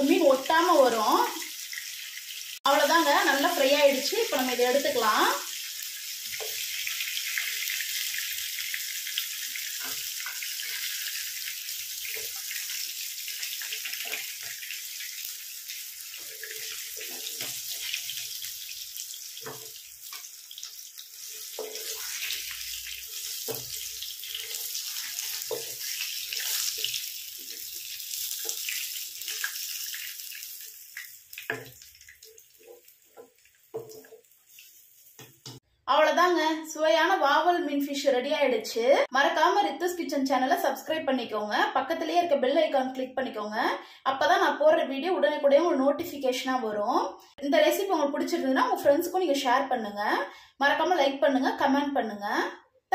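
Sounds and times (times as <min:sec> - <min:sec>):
fish sizzling in oil: 0:00.0 - 0:35.6
wooden spatula taps and scrapes: 0:19.4 - 0:20.3, 0:21.4 - 0:22.4, 0:23.2 - 0:29.6, 0:31.0 - 0:34.3, 0:35.1 - 0:35.6.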